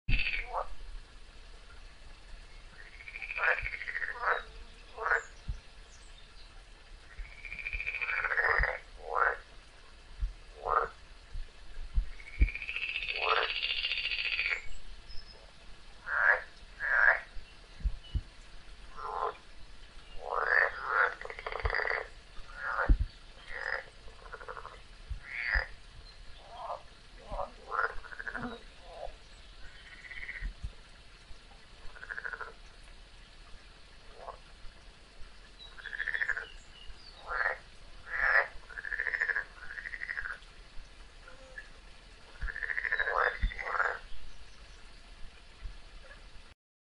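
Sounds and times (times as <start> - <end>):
frogs croaking: 0.1 - 0.8, 2.4 - 6.2, 7.0 - 31.0, 31.6 - 32.9, 33.8 - 44.8.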